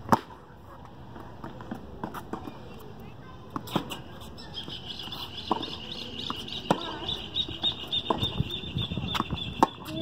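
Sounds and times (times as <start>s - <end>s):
tennis balls hit and bouncing: 0.0s - 10.0s
high chirping call: 4.4s - 10.0s.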